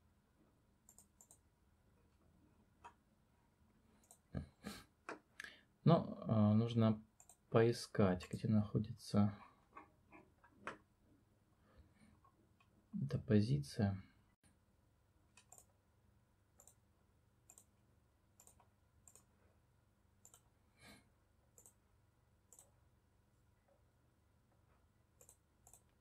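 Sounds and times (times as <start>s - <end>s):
faint computer mouse clicks: 0.9s - 1.4s, 4.0s - 4.2s, 7.2s - 7.4s, 15.3s - 15.7s, 16.6s - 16.8s, 17.5s - 17.7s, 18.4s - 19.3s, 20.2s - 20.5s, 21.6s - 21.8s, 25.2s - 26.0s.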